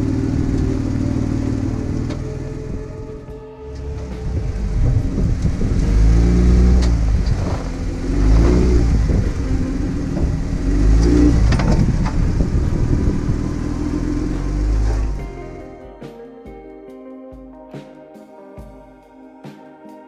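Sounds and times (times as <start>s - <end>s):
engine revving: 0.0s - 16.0s.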